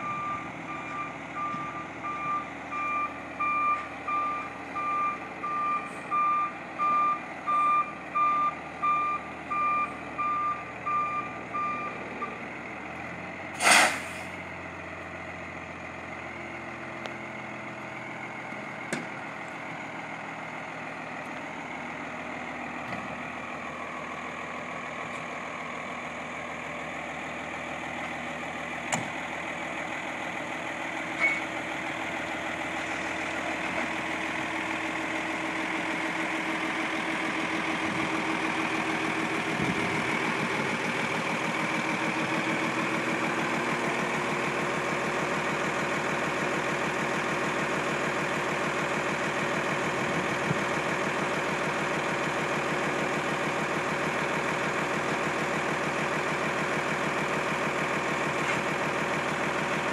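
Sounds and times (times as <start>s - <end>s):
truck backup alarm beeping: 0.0s - 12.4s, 31.1s - 32.7s
diesel engine running: 0.0s - 59.9s
air brake hiss: 13.6s - 14.4s.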